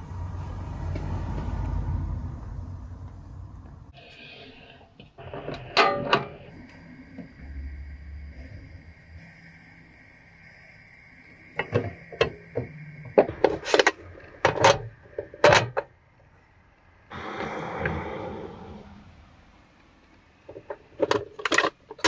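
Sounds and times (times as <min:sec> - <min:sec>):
sliding door scraping open: 0:17.1 - 0:19.4.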